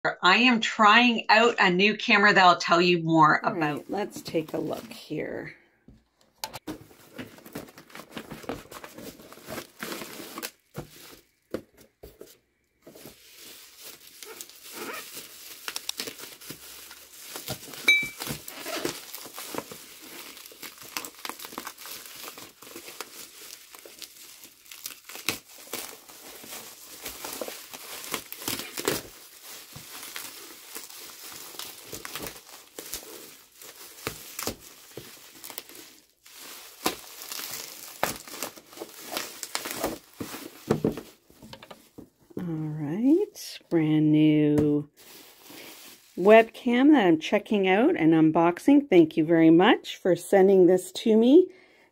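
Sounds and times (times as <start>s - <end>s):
bubble wrap crinkling: 6.6s - 43.2s, 44.7s - 46.7s.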